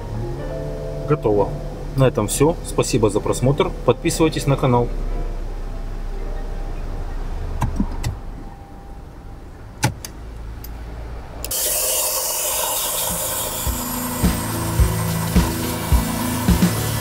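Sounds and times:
car cabin hum: 0.0s - 11.5s
dashboard button clicks: 7.6s - 8.2s, 9.8s - 10.2s
brush rubbing air vents: 11.4s - 17.0s.

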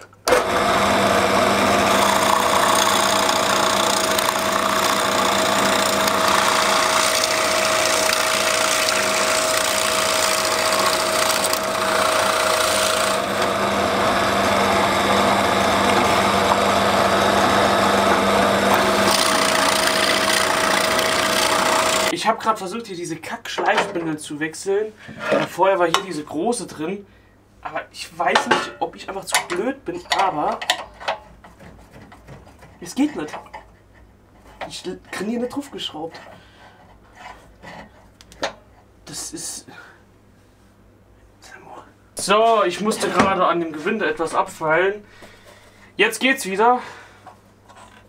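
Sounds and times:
drill bit scraping wood: 0.3s - 22.1s
drill motor tone: 0.3s - 22.1s.

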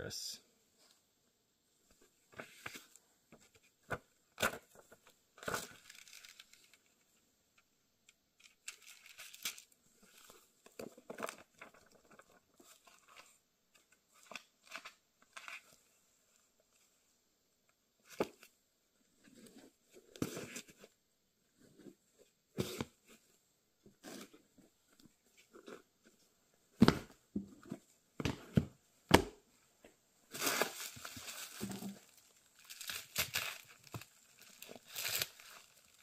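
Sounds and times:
book pages rustling: 24.0s - 36.0s
book covers closing knocks: 26.8s - 27.5s, 28.2s - 29.4s.

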